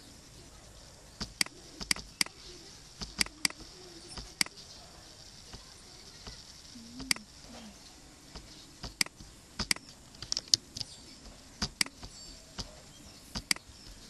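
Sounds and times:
computer mouse clicking: 1.2 - 2.4, 3.0 - 4.6, 6.9 - 7.3, 8.4 - 11.0, 11.6 - 13.7.

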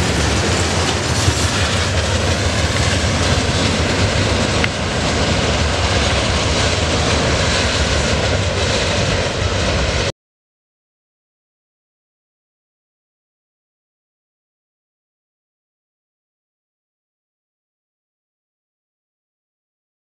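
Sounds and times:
train wheels rumbling on rails: 0.0 - 10.1.

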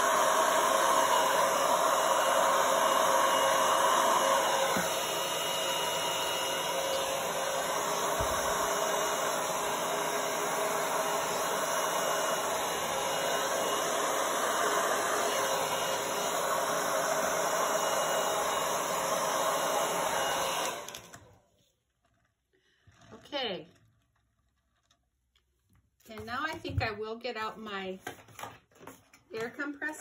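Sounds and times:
blow dryer running: 0.0 - 21.5.

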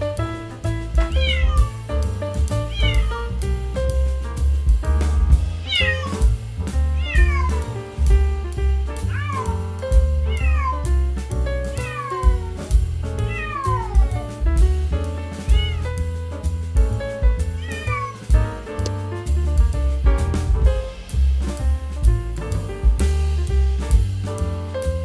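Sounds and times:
background music with bass line: 0.0 - 25.0
kittens meowing: 1.1 - 1.7, 2.7 - 3.1, 5.6 - 6.2, 7.0 - 7.6, 9.1 - 9.6, 10.3 - 10.8, 11.7 - 12.6, 13.2 - 14.3, 15.5 - 15.9, 17.6 - 18.2.

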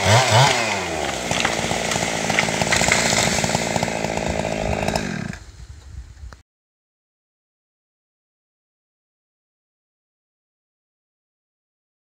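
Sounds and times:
chainsaw at full throttle: 0.0 - 5.4.

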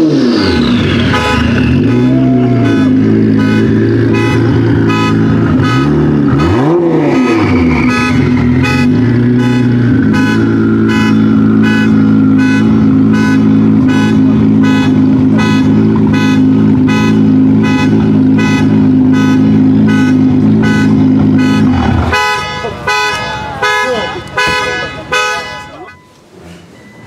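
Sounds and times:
car engine idling: 0.1 - 26.8
electronic beep: 25.8 - 26.2.

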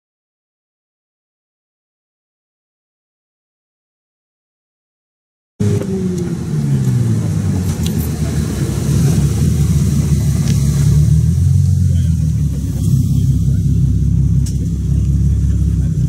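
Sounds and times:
car engine low rumble: 5.6 - 16.0.

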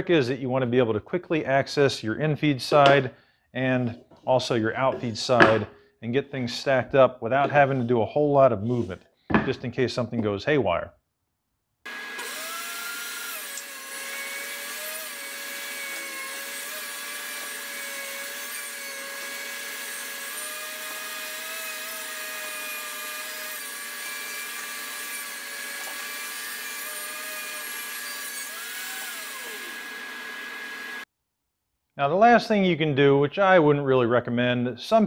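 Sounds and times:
thickness planer running: 11.9 - 31.0.

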